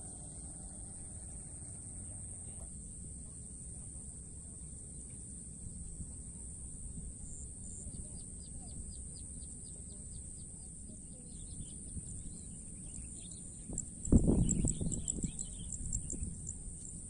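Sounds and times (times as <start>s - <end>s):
steady low rumble: 0.0s - 17.0s
small bird chirping: 7.9s - 16.6s.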